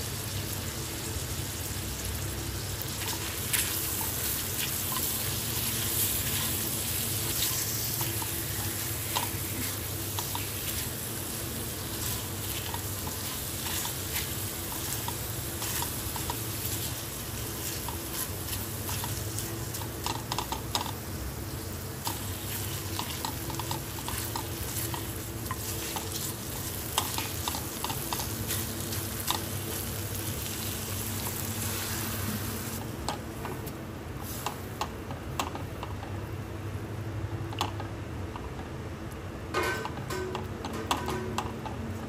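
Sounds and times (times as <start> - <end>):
food sizzling in a pan: 0.0 - 32.8.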